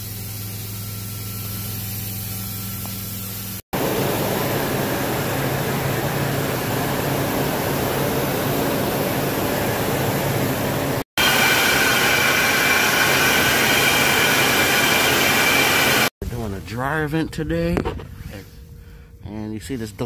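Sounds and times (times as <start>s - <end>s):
air movers running: 3.8s - 17.2s
high steady whine: 3.8s - 18.6s.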